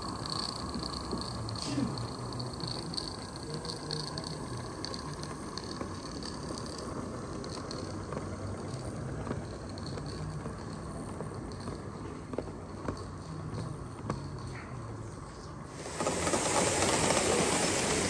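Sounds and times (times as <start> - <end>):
steam hissing: 0.0 - 10.7, 15.7 - 18.0
wheels rolling on track: 0.0 - 18.0.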